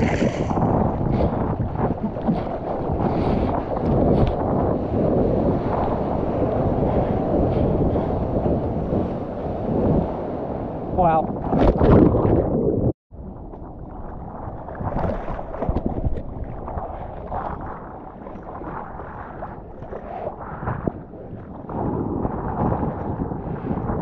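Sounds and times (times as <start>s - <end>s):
water sloshing and splashing: 0.0s - 4.8s, 11.0s - 24.0s
underwater churning rush: 0.0s - 24.0s
wind buffeting microphone: 0.0s - 24.0s.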